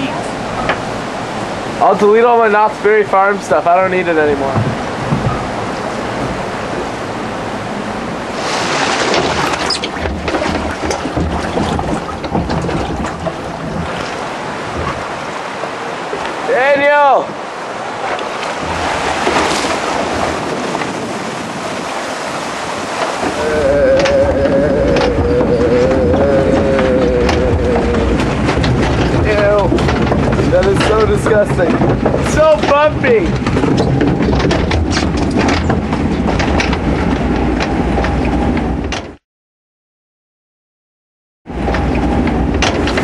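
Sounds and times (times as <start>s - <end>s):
water rushing: 0.0s - 38.5s
boat rattling and knocking: 0.0s - 39.2s, 41.5s - 43.0s
low rumble: 23.4s - 39.0s.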